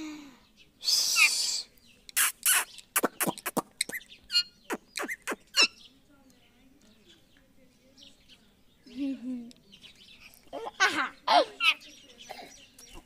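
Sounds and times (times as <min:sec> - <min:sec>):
parakeet screeching and chirping: 0:02.2 - 0:05.8.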